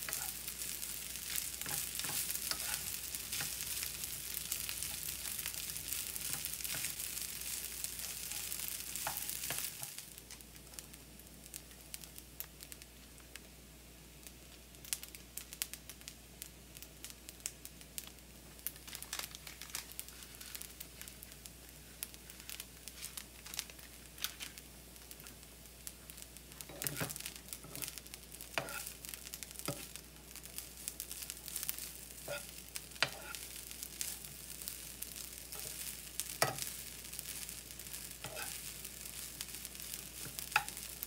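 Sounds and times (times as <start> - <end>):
wooden spatula stirring: 0.0 - 10.0, 26.6 - 28.9
rice sizzling in pan: 0.0 - 41.0
seasoning packet crinkling: 18.7 - 21.1, 22.9 - 24.6.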